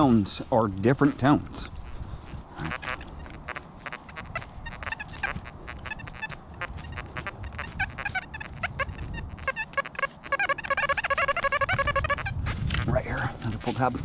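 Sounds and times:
metal detector beeps: 0:02.6 - 0:12.3.

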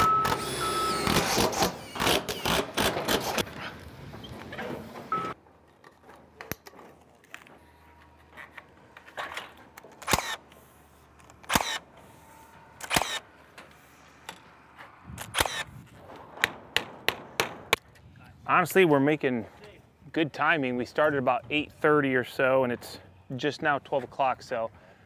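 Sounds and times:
clicks and knocks on metal roof: 0:16.1 - 0:17.8.

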